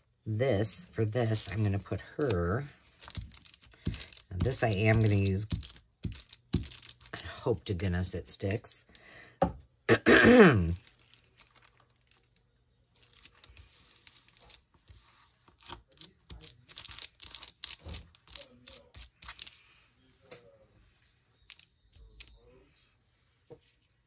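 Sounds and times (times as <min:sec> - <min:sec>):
paper rustling and crinkling: 0:01.2 - 0:07.2, 0:10.7 - 0:19.7.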